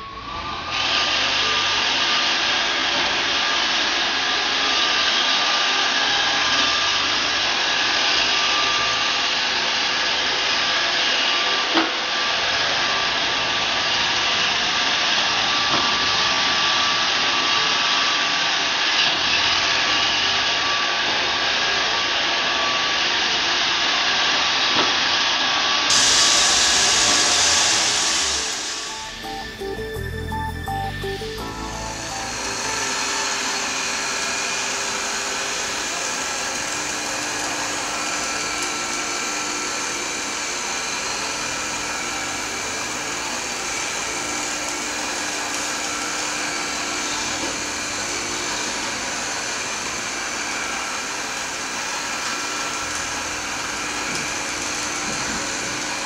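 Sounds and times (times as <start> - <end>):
robot vacuum whirring: 25.9 - 30.4, 31.1 - 56.0.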